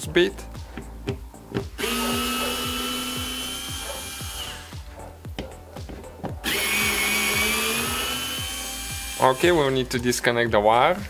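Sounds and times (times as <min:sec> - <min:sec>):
cordless screwdriver whining: 0:01.7 - 0:04.8, 0:06.4 - 0:09.8.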